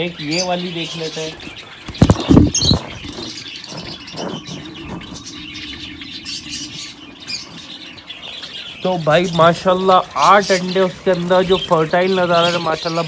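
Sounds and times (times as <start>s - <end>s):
sparrows chirping: 0.0s - 13.0s.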